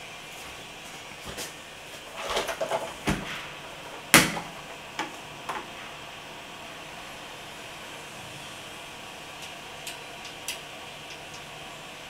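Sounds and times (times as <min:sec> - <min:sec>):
knocks of hard objects: 0:04.2 - 0:05.6.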